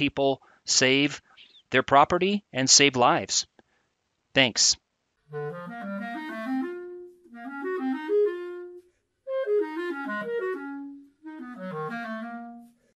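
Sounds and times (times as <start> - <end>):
melody of short stepped notes: 5.2 - 12.9.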